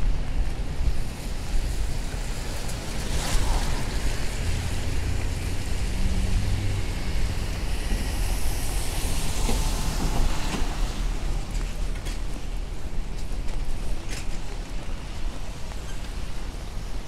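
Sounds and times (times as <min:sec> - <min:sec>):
tyres hissing on wet road: 0:00.0 - 0:17.0
passing vehicle engine rumble: 0:01.1 - 0:12.7.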